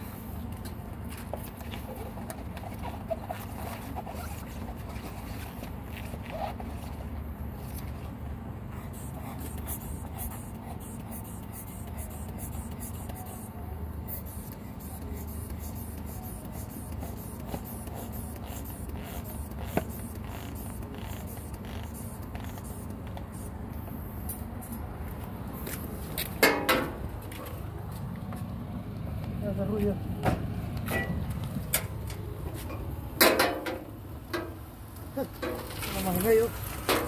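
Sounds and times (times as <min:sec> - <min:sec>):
air wedge pump clicks and creaks: 0:16.0 - 0:23.4.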